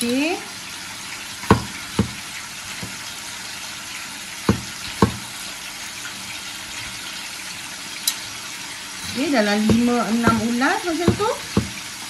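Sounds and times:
chicken sizzling in oil: 0.0s - 12.0s
cleaver knocking on wooden board: 1.5s - 2.2s, 4.5s - 5.2s, 9.0s - 11.8s.

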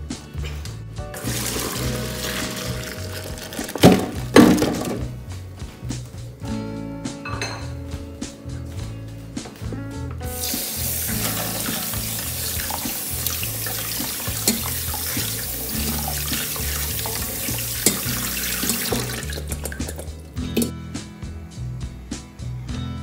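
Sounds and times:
tap water splashing into sink: 1.2s - 5.0s, 10.4s - 20.7s.

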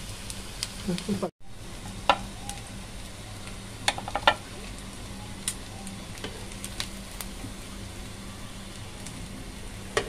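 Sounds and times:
food sizzling in hot oil: 0.0s - 10.0s
sharp clicks of frying: 0.0s - 10.0s.

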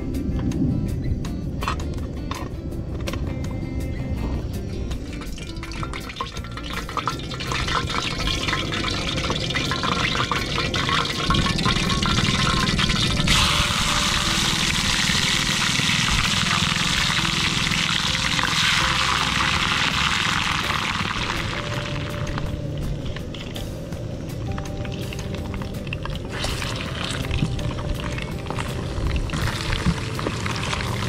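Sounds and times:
water pouring into a pot: 5.1s - 22.4s, 24.9s - 31.0s
water boiling and bubbling: 5.1s - 23.6s, 24.4s - 31.0s.

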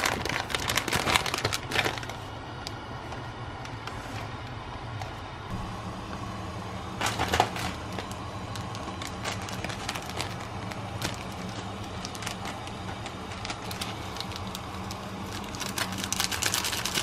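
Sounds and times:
foil sachet crinkling: 0.0s - 2.2s, 7.0s - 17.0s
steady low hum: 0.0s - 17.0s.

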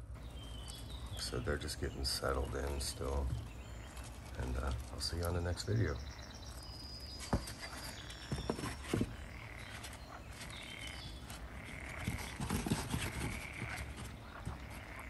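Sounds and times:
cardboard knocks and scrapes: 7.1s - 9.9s, 12.0s - 14.7s.

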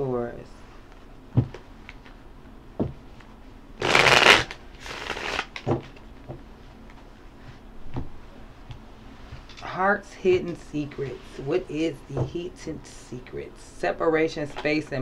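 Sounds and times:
cards shuffling: 3.8s - 6.0s.

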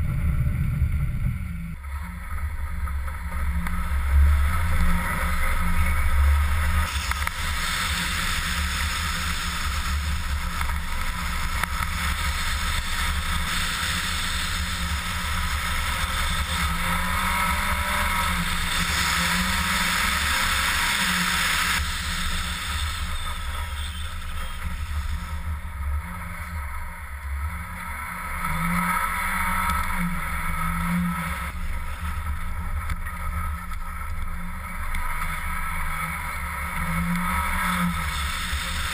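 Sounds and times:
car engine drone: 0.0s - 38.9s
tyre noise on snow: 3.3s - 26.7s.

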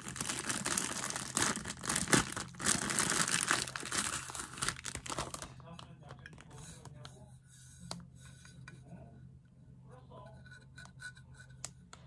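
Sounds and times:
packaging being handled: 0.0s - 5.6s
low steady hum: 0.0s - 12.0s.

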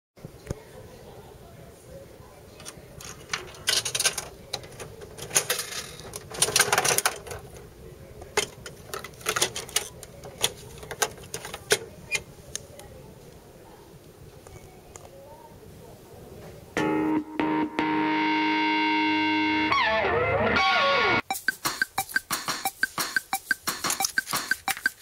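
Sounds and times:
coins dropping into machine: 2.6s - 7.4s
dial turning with clicks: 21.3s - 25.0s.

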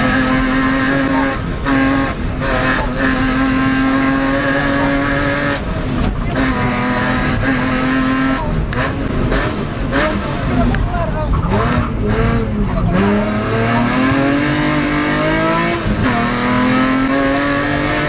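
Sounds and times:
car engine at high revs: 0.0s - 18.0s.

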